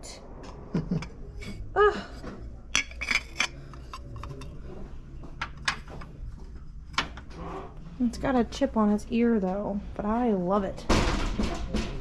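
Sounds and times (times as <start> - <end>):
ceramic shaker clinking: 2.7 - 4.5.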